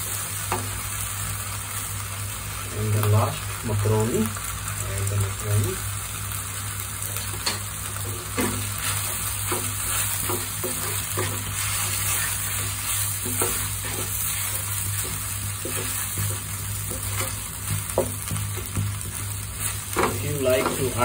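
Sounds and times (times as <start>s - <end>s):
food sizzling in pan: 0.0s - 21.0s
spatula scraping pan: 7.4s - 21.0s.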